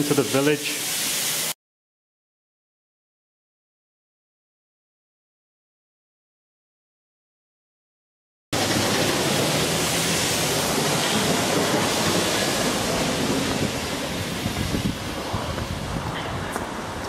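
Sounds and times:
wind rushing across microphone: 12.7s - 17.0s.

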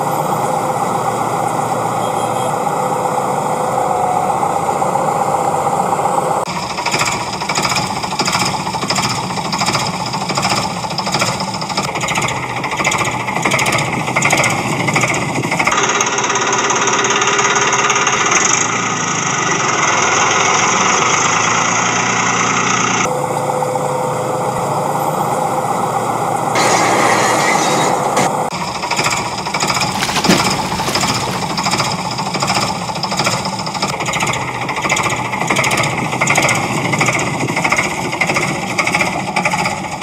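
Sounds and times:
toy tractor engine chugging: 4.8s - 23.1s, 28.5s - 40.0s.

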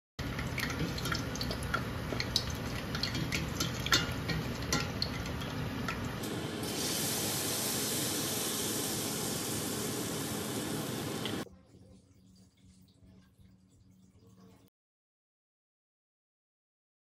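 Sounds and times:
food deep-frying with crackling pops: 0.2s - 11.5s
batter sizzling hiss: 6.2s - 11.4s.

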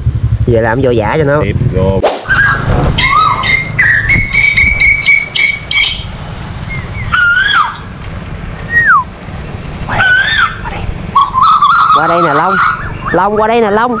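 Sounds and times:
koel calling: 2.3s - 8.0s, 9.8s - 14.0s.

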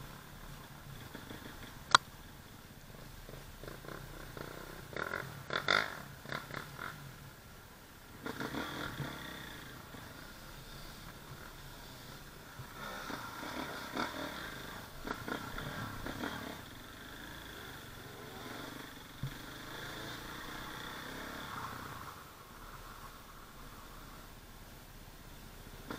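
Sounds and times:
dirt bike engine at low revs: 0.0s - 25.9s.

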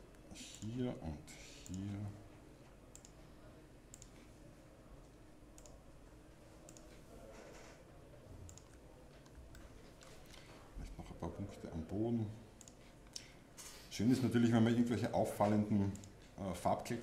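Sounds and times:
computer mouse clicks: 2.9s - 3.2s, 3.9s - 4.2s, 5.6s - 5.8s, 6.7s - 7.0s, 8.5s - 10.4s, 12.6s - 13.3s.

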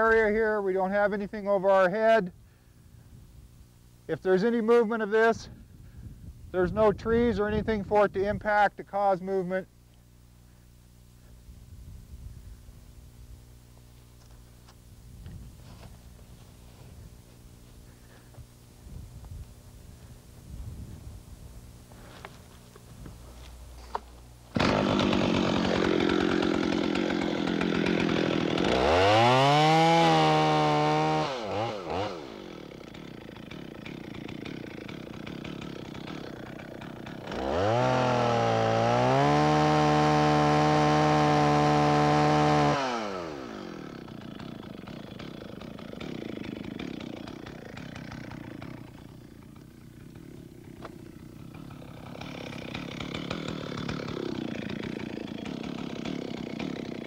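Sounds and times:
chainsaw cutting log: 0.0s - 1.0s, 13.2s - 20.4s, 21.6s - 57.0s.

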